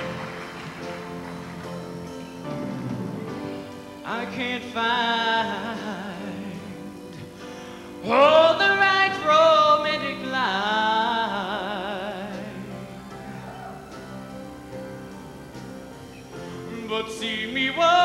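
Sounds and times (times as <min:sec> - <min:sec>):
instrumental backing: 0:00.0 - 0:18.0
man singing a pop ballad: 0:04.0 - 0:13.3, 0:16.5 - 0:18.0.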